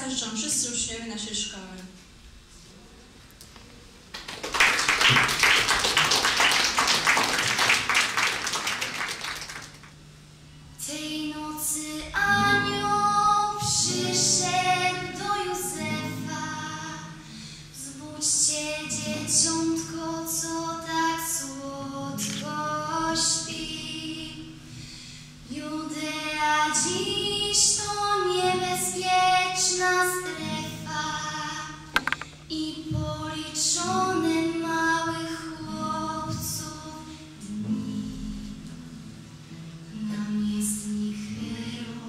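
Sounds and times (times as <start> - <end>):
audience applause: 4.2 - 10.0
girl singing into a microphone: 10.8 - 24.8, 25.4 - 38.9, 39.8 - 42.0.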